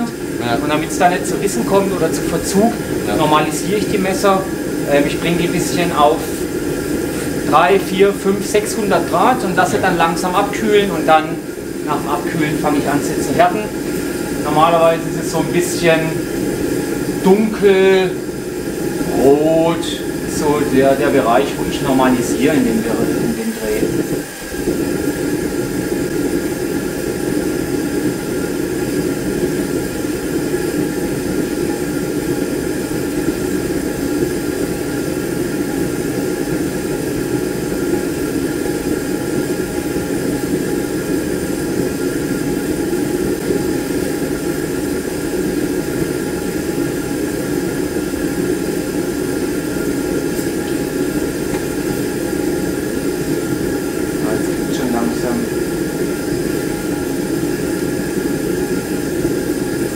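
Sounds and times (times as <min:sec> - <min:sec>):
gas forge burner roaring: 0:00.0 - 0:59.9.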